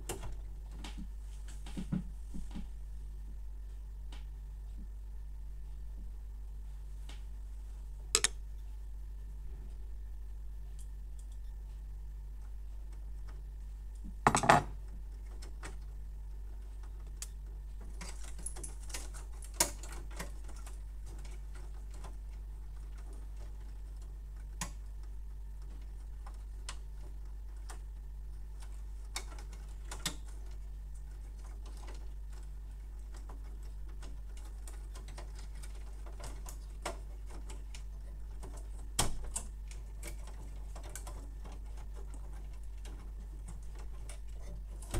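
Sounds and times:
plastic clicks and rattles: 0:08.2 - 0:08.4
plastic clatter: 0:14.3 - 0:14.8.

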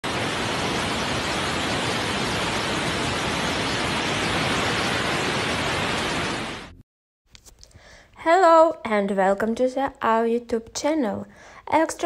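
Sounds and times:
floodwater rushing: 0:00.0 - 0:06.7.

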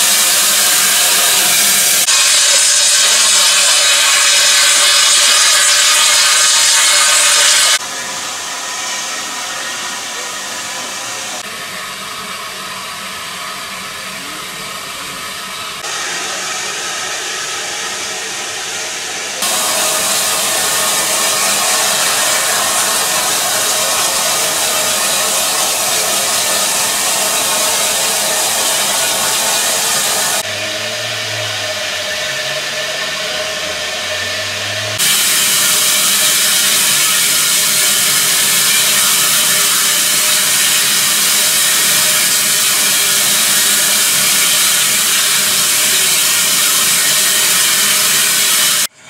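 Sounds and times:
steam locomotive hissing: 0:00.0 - 0:48.9.

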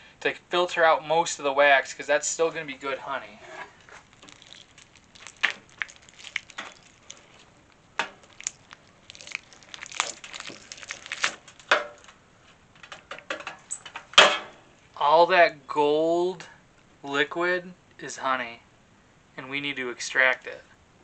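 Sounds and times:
crackles and scrapes: 0:02.5 - 0:14.2
wax cappings being cut: 0:03.6 - 0:11.7.

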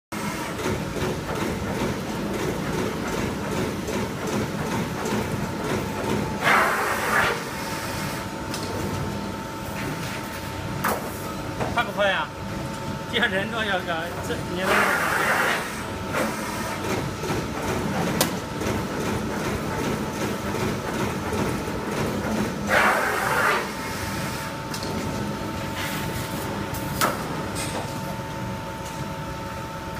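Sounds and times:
machine running noise: 0:00.1 - 0:29.9
punch press humming: 0:00.2 - 0:09.4.

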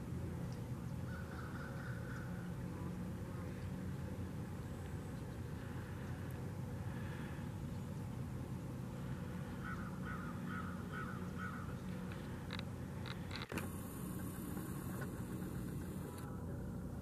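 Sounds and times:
steady low hum: 0:00.0 - 0:17.0
crow cawing: 0:01.1 - 0:02.4, 0:09.6 - 0:11.8.

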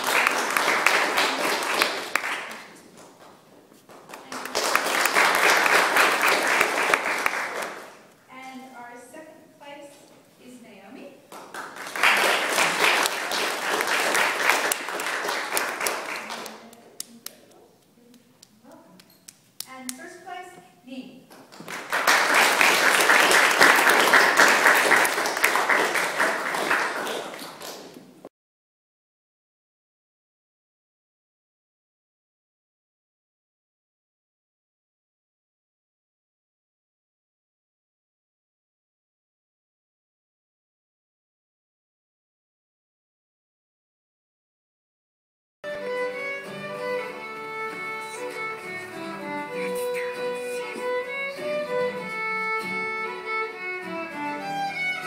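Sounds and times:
audience applauding: 0:00.0 - 0:02.8, 0:04.0 - 0:08.1, 0:11.3 - 0:17.3, 0:21.4 - 0:28.2.

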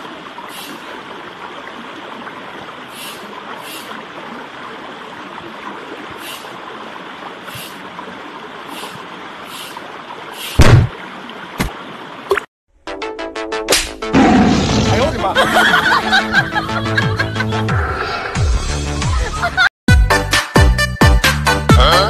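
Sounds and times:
stream water rushing: 0:00.0 - 0:12.5.

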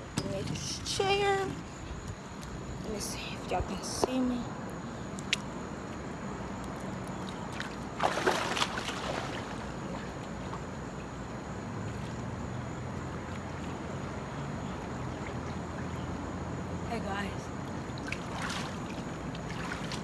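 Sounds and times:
pool water lapping: 0:07.1 - 0:16.8, 0:17.5 - 0:20.0
person splashing into pool: 0:07.6 - 0:09.7.

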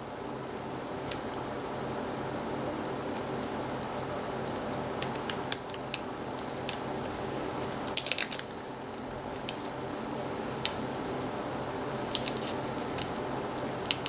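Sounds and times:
steady background hum: 0:00.0 - 0:14.0
crackles: 0:02.7 - 0:14.0
small clicks and crinkles: 0:03.2 - 0:11.3, 0:12.0 - 0:14.0.

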